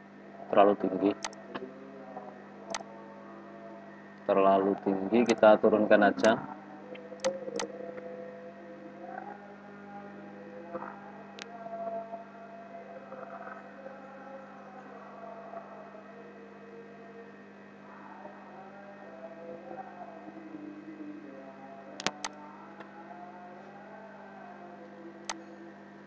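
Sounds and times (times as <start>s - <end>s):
low electrical hum: 0.0s - 26.0s
sharp click: 1.2s - 1.4s, 7.2s - 7.7s, 22.0s - 22.4s.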